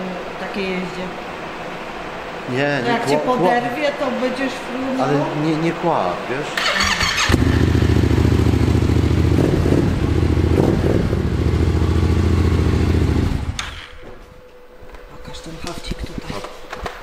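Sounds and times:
quad engine idling: 6.6 - 13.6.

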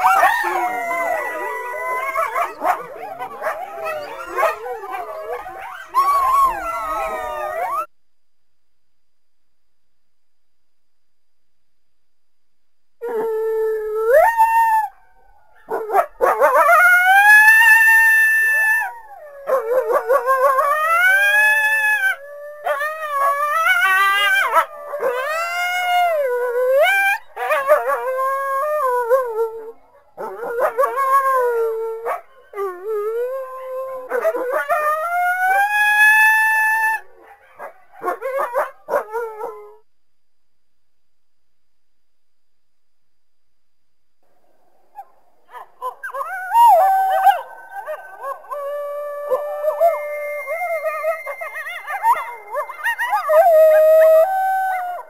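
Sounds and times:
coyotes howling: 0.0 - 7.9, 13.0 - 39.8, 44.9 - 55.0
coyotes yipping: 49.7 - 54.3.

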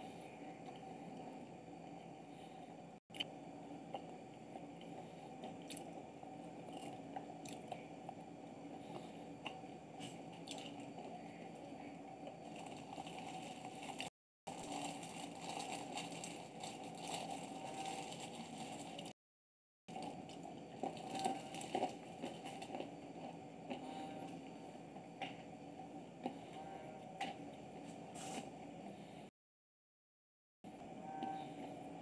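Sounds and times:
low room hum: 0.0 - 19.2, 19.9 - 29.3, 30.7 - 32.0
cats chewing and lapping: 19.9 - 24.4.

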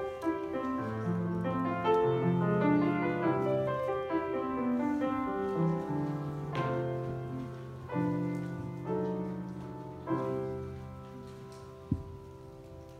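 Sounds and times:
solo grand piano: 0.0 - 12.9.

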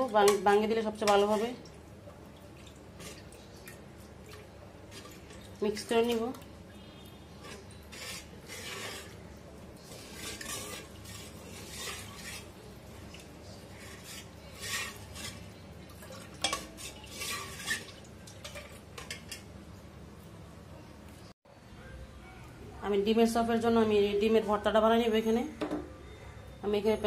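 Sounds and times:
spoon stirring in metal pot: 0.0 - 1.8, 2.5 - 19.5.

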